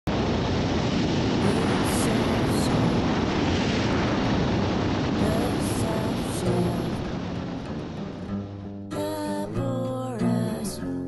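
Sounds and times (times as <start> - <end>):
wind rush: 0.1 - 9.0
music: 5.2 - 11.0.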